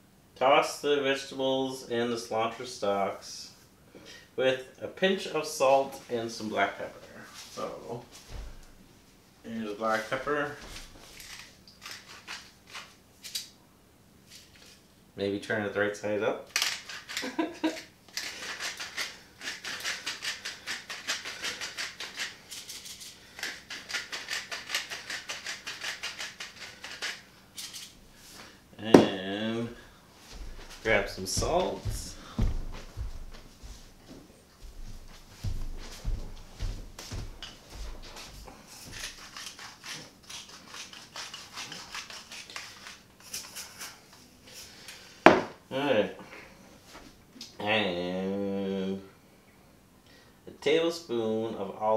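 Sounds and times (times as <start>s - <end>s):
pepper mill grinding: 11.2s - 13.5s, 16.5s - 28.0s, 38.7s - 43.9s.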